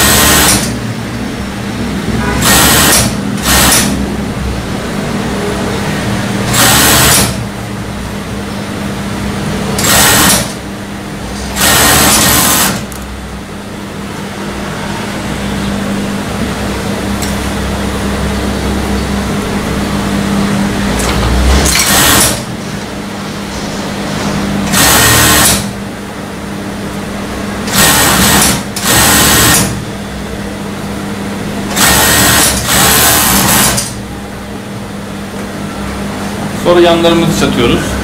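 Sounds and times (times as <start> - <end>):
overlock sewing machine stitching: 0.0 - 0.8, 2.2 - 4.0, 6.5 - 7.4, 9.8 - 10.6, 11.4 - 13.0, 21.0 - 22.5, 24.6 - 25.7, 27.6 - 29.8, 31.7 - 34.0
steady low hum: 0.0 - 38.0.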